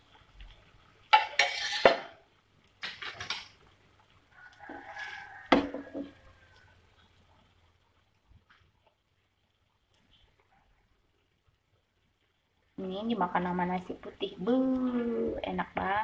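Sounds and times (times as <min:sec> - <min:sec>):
spatula scraping frying pan: 0:01.1 - 0:02.2.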